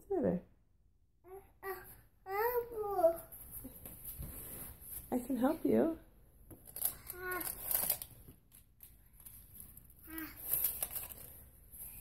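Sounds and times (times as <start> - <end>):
toddler vocal sounds: 1.2 - 3.4, 6.9 - 7.9, 10.0 - 10.8
rustling and crinkling of bags: 6.6 - 12.0.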